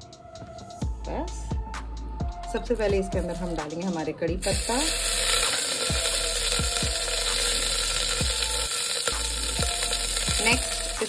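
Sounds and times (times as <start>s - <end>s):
leaves sizzling in hot oil: 4.4s - 11.0s.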